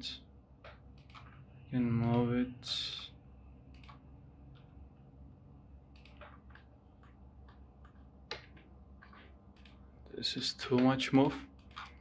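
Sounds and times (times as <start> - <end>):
low steady hum: 0.0 - 12.0
computer mouse and keyboard clicks: 0.6 - 1.4, 3.7 - 4.7, 5.9 - 9.8, 10.6 - 12.0.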